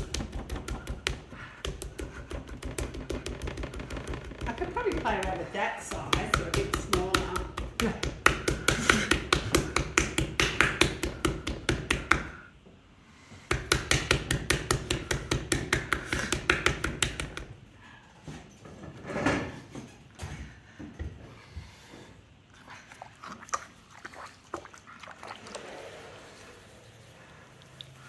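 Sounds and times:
hands slapping clay: 0.0s - 3.8s, 4.4s - 12.4s, 13.5s - 17.5s.

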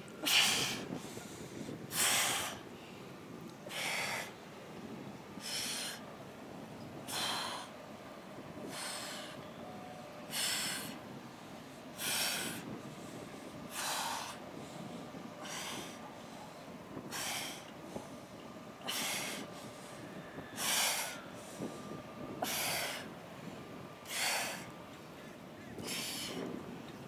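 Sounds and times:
steady low hiss: 0.0s - 15.5s.

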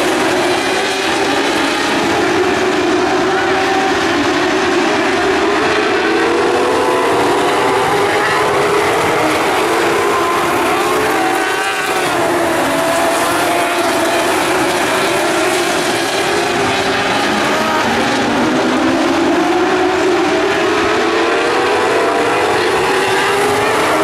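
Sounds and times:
race car engines at high revs: 0.0s - 24.0s.

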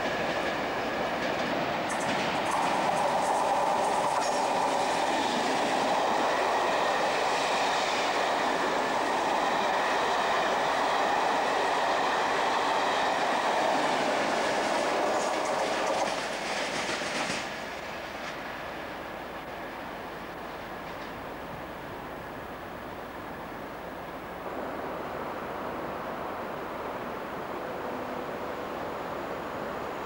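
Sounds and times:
train clattering over rail joints: 0.0s - 10.2s, 13.2s - 18.6s, 20.6s - 21.4s
train wheels rumbling on rails: 0.0s - 30.0s.

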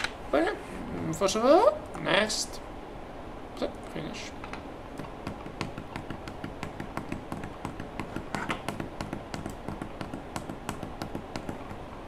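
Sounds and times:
rapid light taps and clicks: 4.4s - 12.0s.

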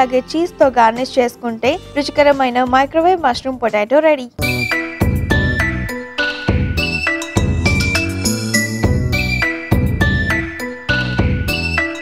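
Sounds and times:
bright jingle music: 4.4s - 12.0s.

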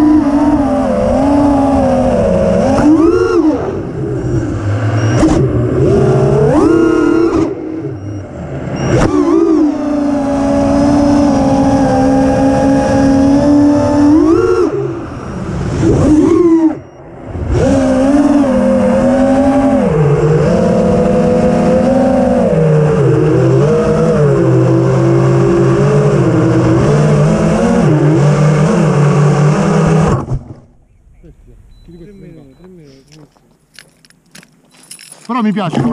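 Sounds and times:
drone motors whining: 0.0s - 34.5s.

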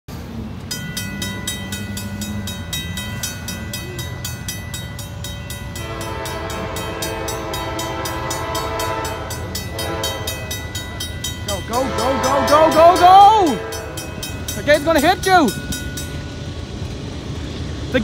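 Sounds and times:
level crossing bell dinging: 0.7s - 16.5s
locomotive air horn chord: 5.7s - 10.8s, 11.6s - 14.3s.

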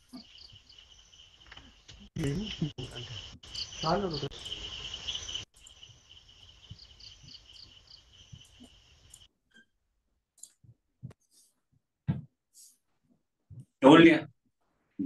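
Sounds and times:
crickets chirping: 0.0s - 9.3s.

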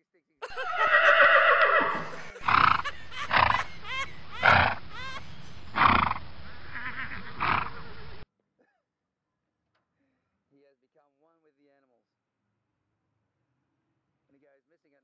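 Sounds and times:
horses snorting: 0.5s - 8.2s.

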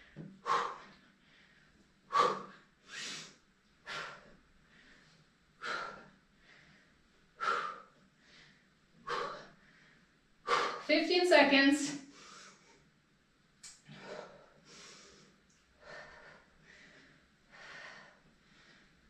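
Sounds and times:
person breathing heavily: 0.2s - 10.9s, 13.8s - 19.0s.

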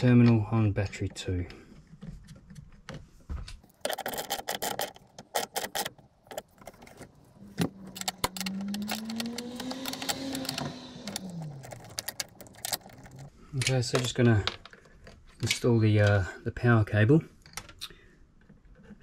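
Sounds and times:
metal clinking and clicking: 3.7s - 14.8s
vehicle engine hum passing: 7.4s - 13.3s.

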